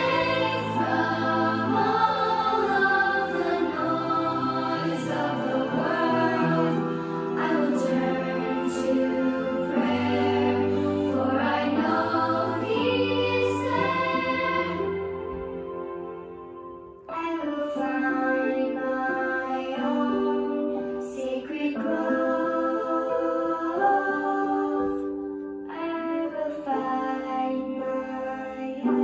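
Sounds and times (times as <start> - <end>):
choir-like voices: 0.0 - 16.0, 17.1 - 29.0
music track: 0.0 - 29.0
woman singing: 17.1 - 29.0.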